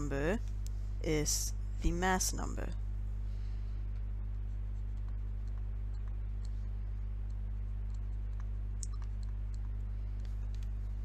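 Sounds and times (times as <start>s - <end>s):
low electrical hum: 0.0s - 11.0s
stylus scratching on tablet: 4.4s - 5.6s.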